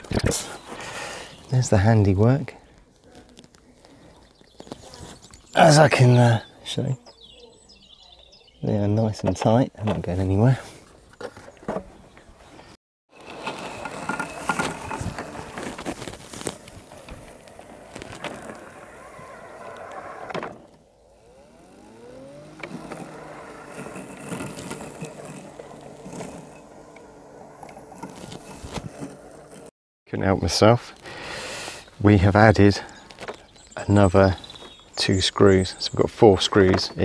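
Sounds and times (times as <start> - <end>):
robotic lawnmower running: 13.1 - 29.7.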